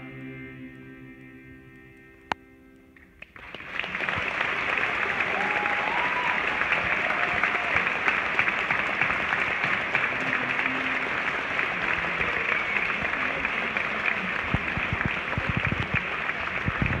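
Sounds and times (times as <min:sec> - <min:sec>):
audience applauding: 0:03.2 - 0:17.0.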